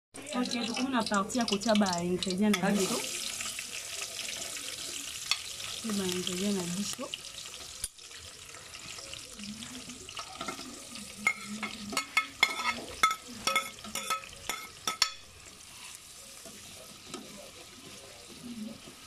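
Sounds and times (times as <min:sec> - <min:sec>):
food sizzling in pot: 0:00.2 - 0:19.0
metal spoon scraping a plate: 0:11.2 - 0:15.2
spoon clinking on metal pot: 0:11.2 - 0:15.3.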